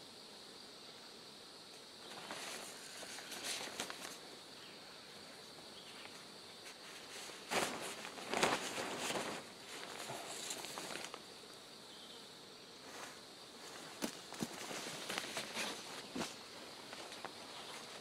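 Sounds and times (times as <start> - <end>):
insects droning: 0.0 - 18.0
tarp rustling and crinkling: 2.0 - 4.2, 6.0 - 11.3, 12.8 - 18.0.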